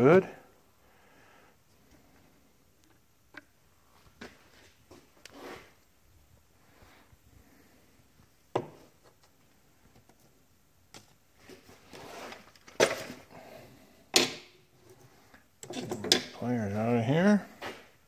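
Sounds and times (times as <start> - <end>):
tools clattering on workbench: 15.6 - 16.4.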